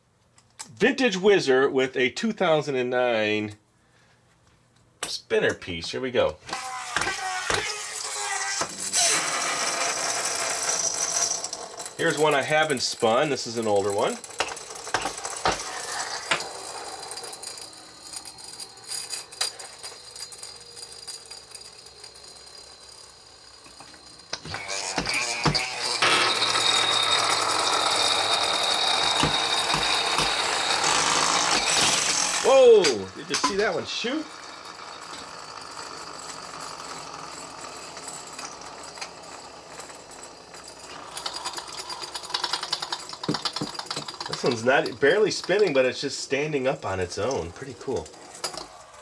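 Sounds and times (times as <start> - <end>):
spinning top whine: 6.4 - 49.0
loud rasping noise: 6.5 - 12.8, 23.8 - 38.4
top tip rattling and clicking: 38.0 - 45.9.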